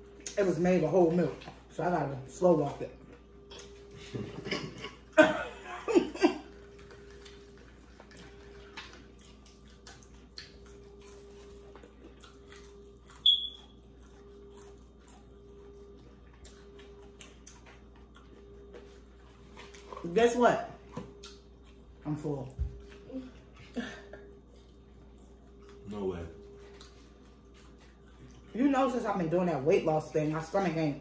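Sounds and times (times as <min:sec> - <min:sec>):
chewing crispy food: 0:00.0 - 0:31.0
faint hum: 0:00.0 - 0:31.0
short high-pitched beep: 0:13.2 - 0:13.6.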